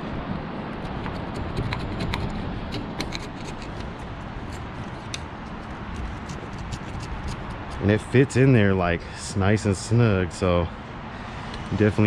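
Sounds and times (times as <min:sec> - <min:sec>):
scraping clicks and scratches: 0:00.8 - 0:07.8
steady background hiss: 0:07.4 - 0:12.0.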